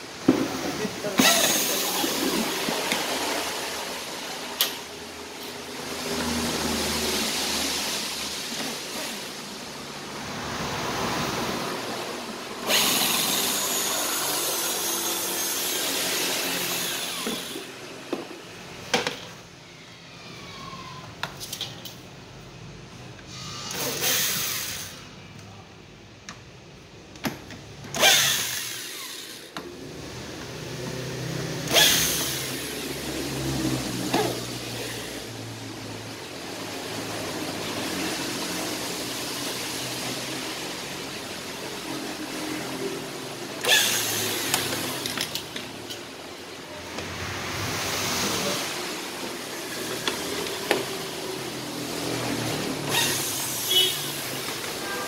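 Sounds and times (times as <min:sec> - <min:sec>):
electric drill whirring: 0:01.2 - 0:03.4, 0:12.6 - 0:17.8, 0:23.3 - 0:25.0, 0:28.0 - 0:29.6, 0:31.6 - 0:33.0, 0:43.6 - 0:45.5, 0:52.8 - 0:54.8.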